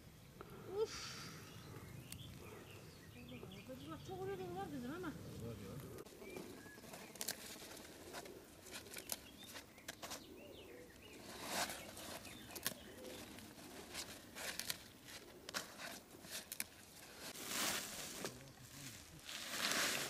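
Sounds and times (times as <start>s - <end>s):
leaves rustling: 3.2s - 20.0s
stalks snapping and crackling: 6.8s - 10.2s, 11.5s - 18.5s.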